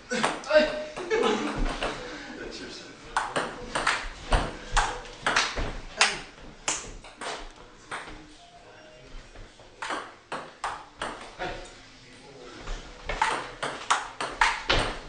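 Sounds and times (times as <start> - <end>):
table tennis ball hits: 3.2 - 8.2, 9.8 - 11.3, 13.1 - 15.0.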